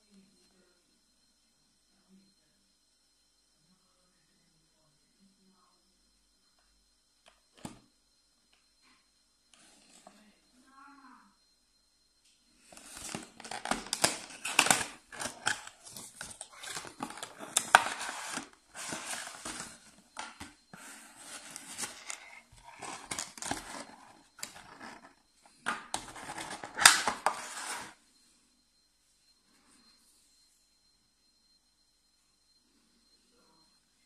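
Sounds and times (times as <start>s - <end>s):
cardboard and plastic packaging rustling: 12.7s - 28.0s.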